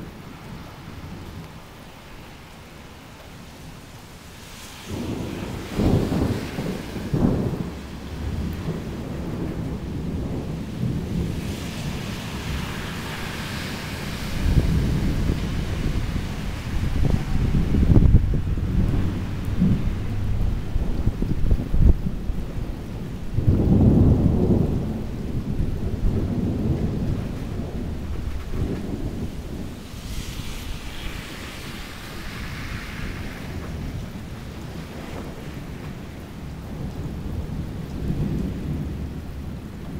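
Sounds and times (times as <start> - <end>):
steady hiss: 2.1 - 8.4, 10.3 - 18.1, 28.2 - 34.8
thunder rumbling: 4.2 - 39.9.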